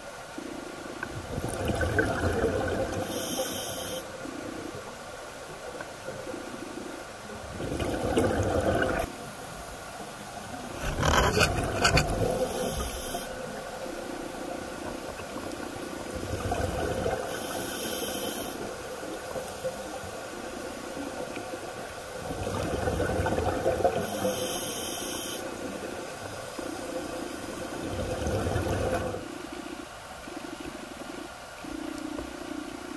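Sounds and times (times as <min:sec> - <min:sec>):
underwater exhale bubbles: 0:01.1 - 0:04.0, 0:07.5 - 0:09.1, 0:15.3 - 0:20.0, 0:22.2 - 0:25.9, 0:26.6 - 0:29.3
regulator inhalation hiss: 0:03.0 - 0:04.1, 0:12.4 - 0:13.5, 0:17.3 - 0:18.7, 0:24.0 - 0:25.6.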